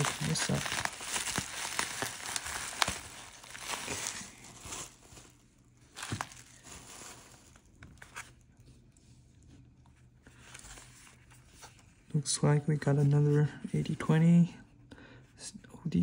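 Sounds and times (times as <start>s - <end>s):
bubble wrap crinkling: 0.0s - 12.0s.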